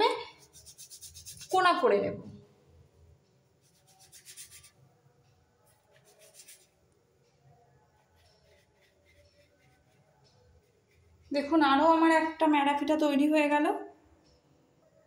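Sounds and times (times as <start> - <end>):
palm rubbing dough on board: 0.4 - 1.6, 3.7 - 4.8, 5.8 - 6.7.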